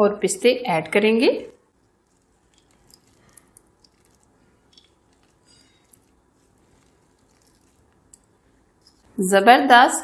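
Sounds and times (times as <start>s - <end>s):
nuts sprinkled into glass bowl: 1.9s - 9.2s.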